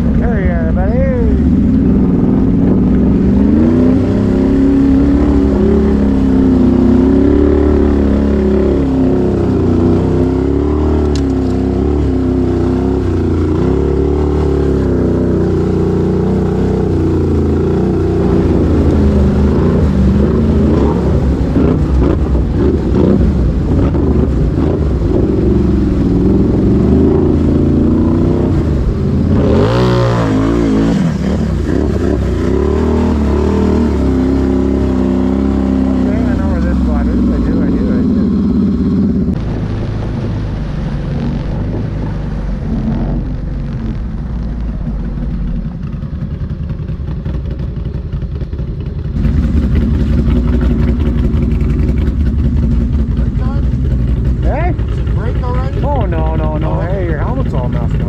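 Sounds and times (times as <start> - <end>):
quad bike engine revving: 0.0 - 58.0
water splashing: 0.0 - 58.0.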